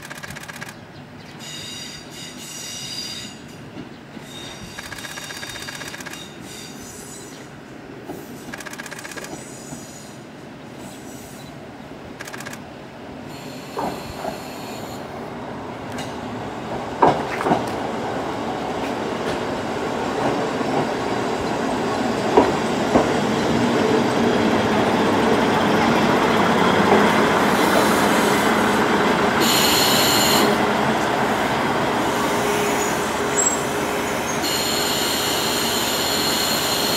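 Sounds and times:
train rolling noise: 0.0 - 36.9
train wheels clacking over rail joints: 3.2 - 6.8, 17.0 - 17.8, 22.3 - 23.3.

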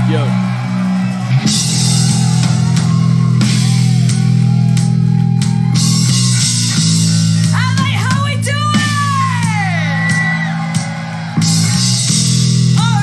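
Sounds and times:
bass guitar: 0.0 - 13.0
drums and cymbals: 0.0 - 13.0.

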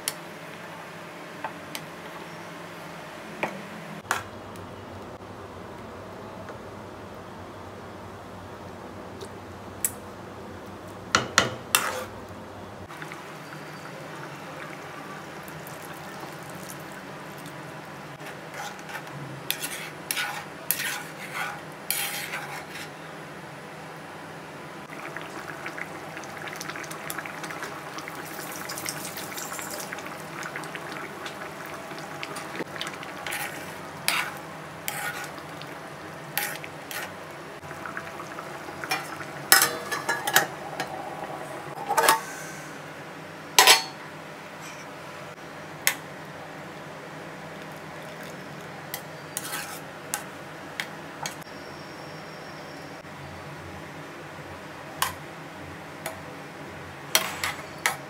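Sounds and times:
metal spoon scraping a pan: 11.7 - 12.1, 18.2 - 23.0, 33.2 - 35.4, 36.4 - 37.1, 48.9 - 50.2, 57.1 - 58.0.

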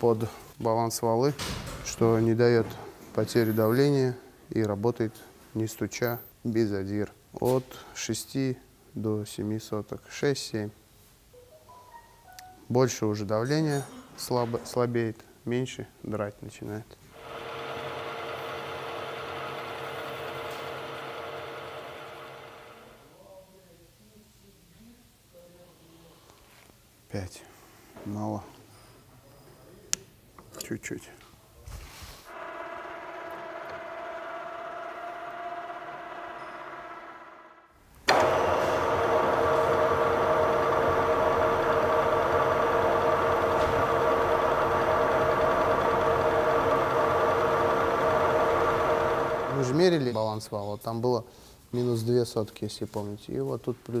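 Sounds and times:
boring machine humming: 17.2 - 23.1, 32.3 - 50.2.

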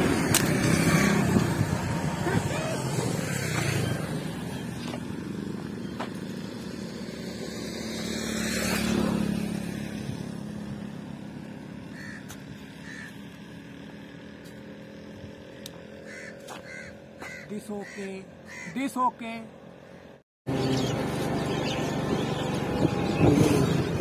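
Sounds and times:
motor vehicle engine passing: 0.0 - 18.7, 19.4 - 24.0.

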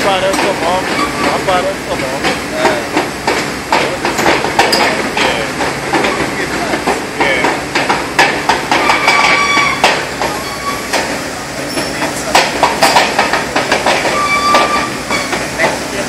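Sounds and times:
heavy machinery running: 0.0 - 16.0
metal clanks: 0.2 - 15.8
high-pitched squeals: 8.7 - 11.0, 14.0 - 15.6.

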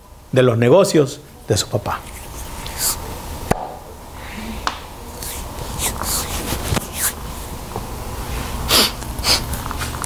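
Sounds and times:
soft hissing: 1.2 - 3.3, 4.1 - 7.4.

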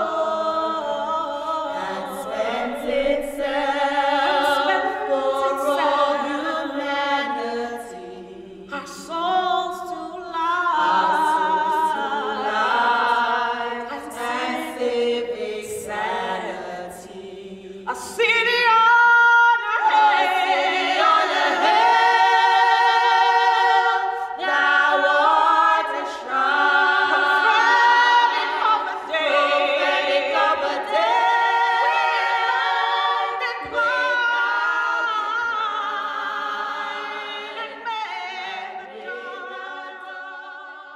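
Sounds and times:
choir singing unaccompanied: 0.0 - 40.9.

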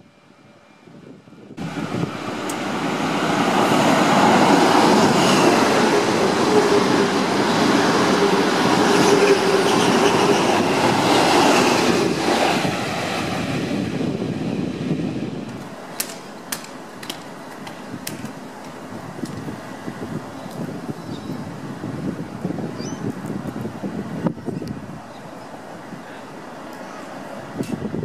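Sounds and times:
diesel train passing: 0.0 - 28.0.

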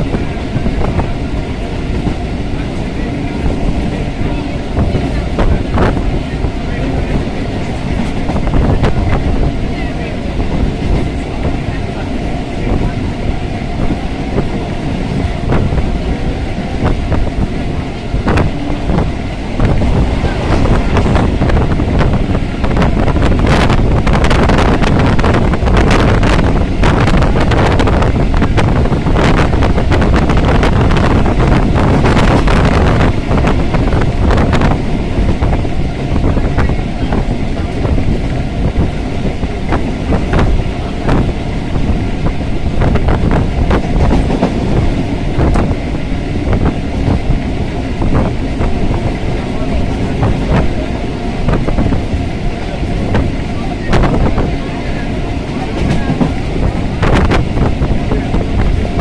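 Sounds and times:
train rattles and clacks: 0.0 - 59.0
train wheels rumbling on rails: 0.0 - 59.0
wind buffeting microphone: 0.0 - 59.0.

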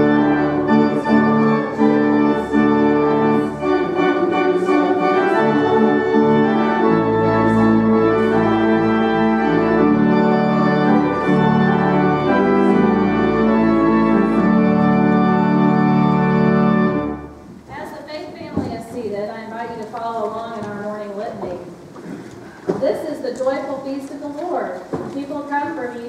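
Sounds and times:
organ playing slow chords: 0.0 - 17.5.

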